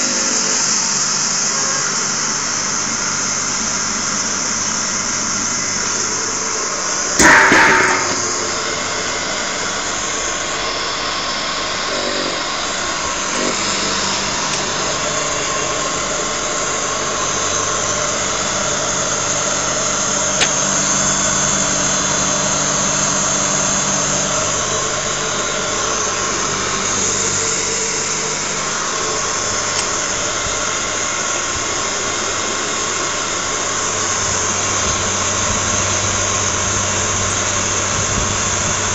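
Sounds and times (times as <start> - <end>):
grinding mill motor hum: 0.0 - 38.9
loud clatter: 7.2 - 9.3.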